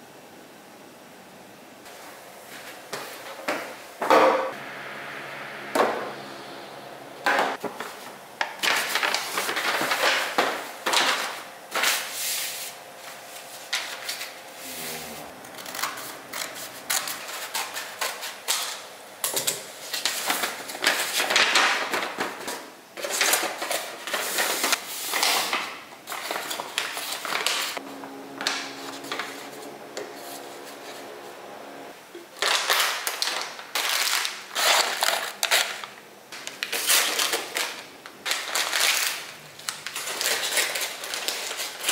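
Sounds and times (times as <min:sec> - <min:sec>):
paper bag rustling: 0:07.6 - 0:14.3, 0:32.4 - 0:41.9.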